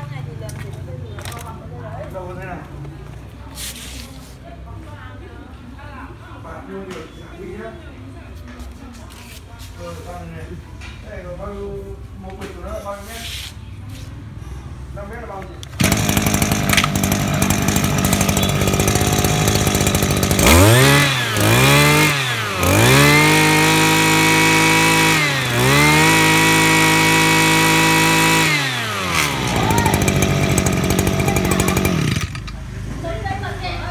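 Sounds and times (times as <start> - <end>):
brush cutter engine revving: 15.6 - 32.8.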